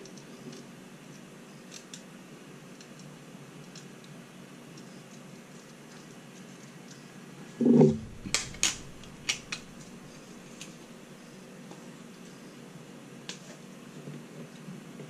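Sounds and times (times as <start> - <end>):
dull thump: 7.6 - 10.0.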